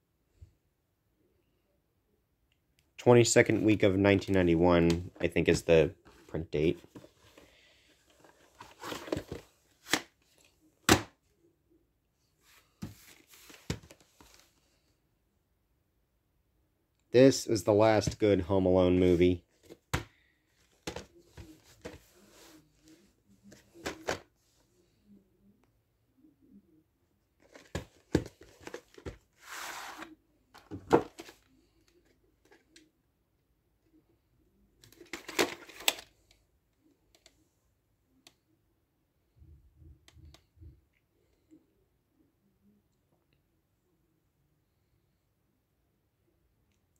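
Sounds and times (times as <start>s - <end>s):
plastic cassette case rustling: 6.1s - 11.0s, 20.6s - 22.1s, 23.5s - 24.2s, 27.4s - 32.7s, 34.8s - 36.2s
short rustling scrape: 29.4s - 30.1s.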